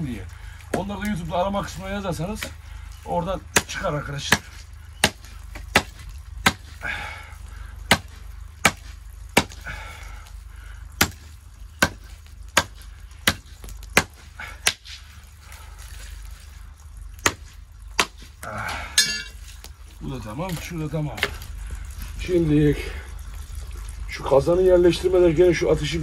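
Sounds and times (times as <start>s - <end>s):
hatchet chopping wood: 3.5s - 6.8s, 7.9s - 9.6s, 11.0s - 15.0s, 17.2s - 18.3s.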